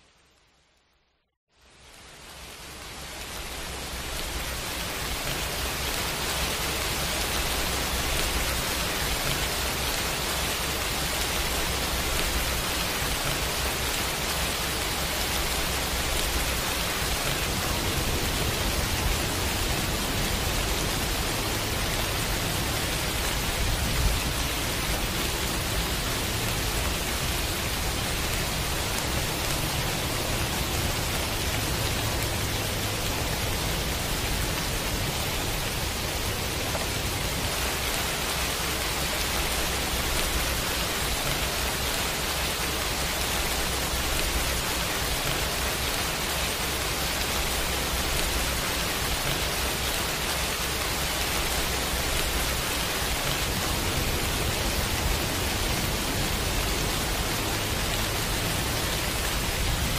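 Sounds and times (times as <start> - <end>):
heavy rain hissing: 1.5 - 59.9.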